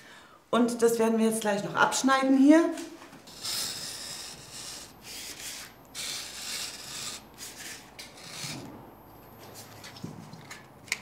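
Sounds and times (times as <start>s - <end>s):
utility knife cutting wallpaper: 3.2s - 8.8s.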